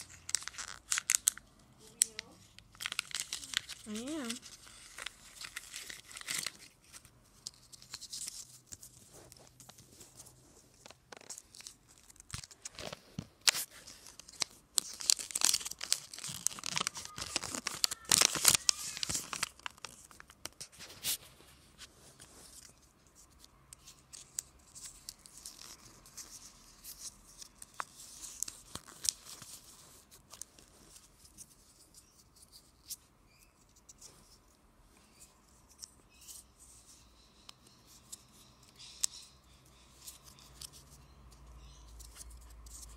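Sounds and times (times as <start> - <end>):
foil wrapper crinkling and tearing: 0.0 - 8.6, 10.8 - 21.1.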